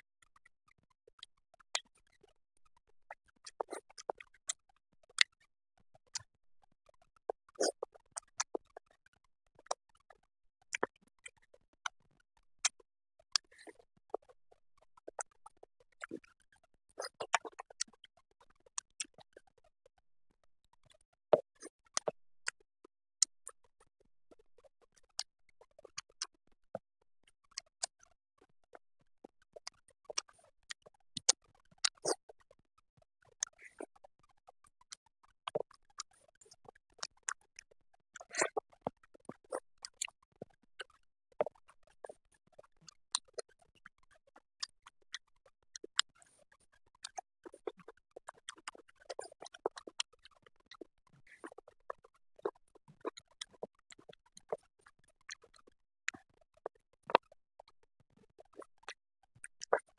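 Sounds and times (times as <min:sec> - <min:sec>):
person chewing with mouth clicks: 0:03.4 - 0:04.3, 0:07.2 - 0:08.9, 0:10.7 - 0:11.8, 0:13.4 - 0:14.3, 0:15.1 - 0:16.3, 0:17.0 - 0:18.0, 0:21.4 - 0:22.6, 0:29.3 - 0:32.4, 0:33.4 - 0:34.0, 0:35.5 - 0:37.4, 0:38.2 - 0:42.2, 0:42.9 - 0:43.9, 0:44.6 - 0:45.1, 0:45.8 - 0:46.2, 0:47.0 - 0:57.3, 0:58.4 - 0:59.9.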